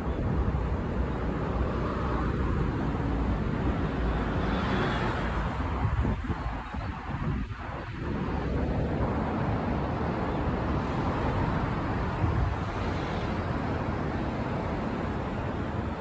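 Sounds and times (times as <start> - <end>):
road traffic rushing by: 0.0 - 16.0.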